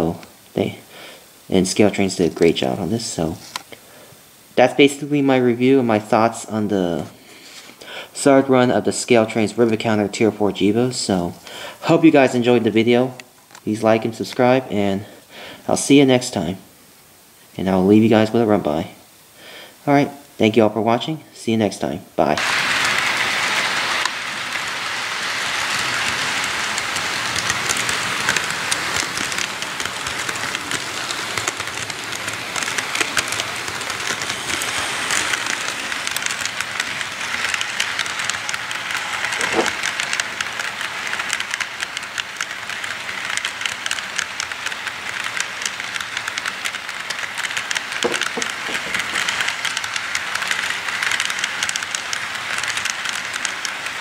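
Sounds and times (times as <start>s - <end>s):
model train wheels rolling on rails: 0.0s - 3.8s, 4.6s - 16.6s, 21.7s - 54.0s
louder knocks: 48.0s - 48.9s.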